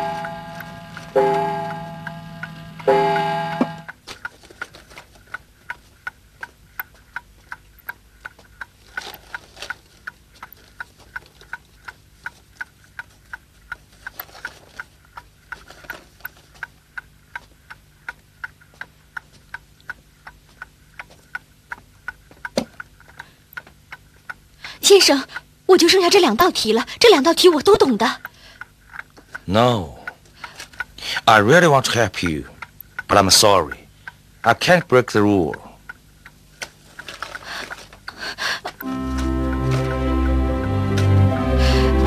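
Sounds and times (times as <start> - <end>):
held music chord: 0.0 - 3.9, 38.8 - 42.0
clock ticking: 0.0 - 4.4, 5.3 - 39.6.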